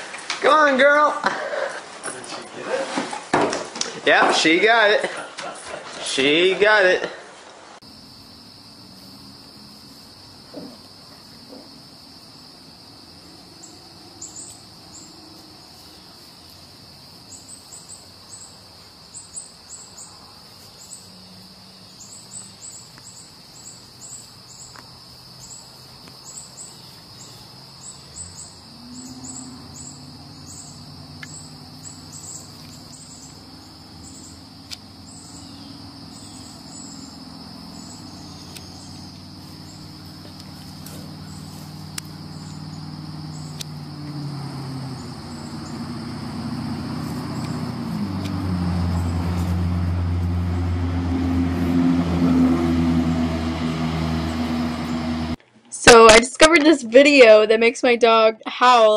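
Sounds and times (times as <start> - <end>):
high insect drone: 7.8 - 56.4
low engine hum: 27.2 - 55.4.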